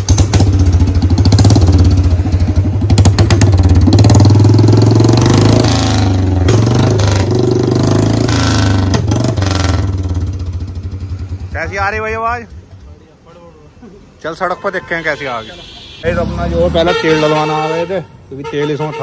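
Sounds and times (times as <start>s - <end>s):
motorcycle engine revving: 0.0s - 12.9s, 16.0s - 17.0s.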